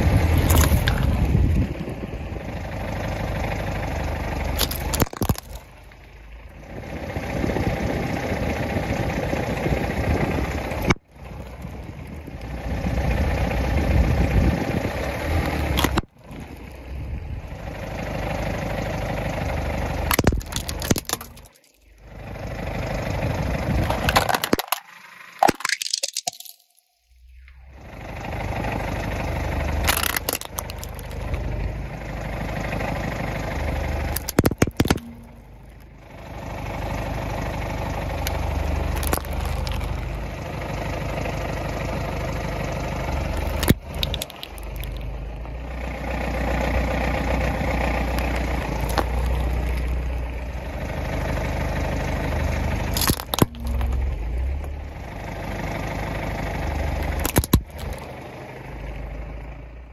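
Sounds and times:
car engine running: 0.0s - 25.7s, 26.4s - 59.9s
plastic toys cracking under tyre: 0.2s - 1.3s, 4.5s - 5.8s, 15.2s - 16.8s, 20.1s - 22.0s, 23.7s - 26.8s, 29.8s - 31.4s, 34.0s - 35.9s, 38.2s - 40.3s, 43.2s - 45.2s, 47.7s - 50.3s, 52.9s - 54.8s, 57.0s - 58.2s.

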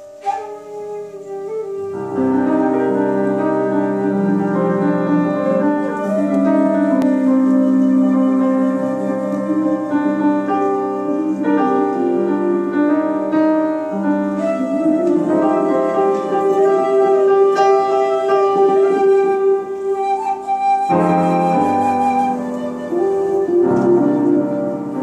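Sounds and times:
flute long held notes: 0.0s - 25.0s
grand piano: 0.0s - 25.0s
electric guitar: 13.6s - 25.0s.

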